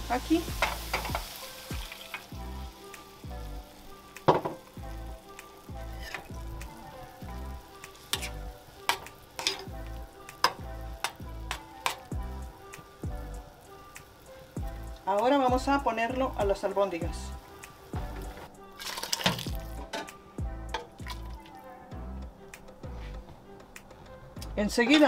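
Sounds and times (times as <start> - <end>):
food sizzling in a frying pan: 0.0 - 19.9
broth pouring: 18.0 - 19.8.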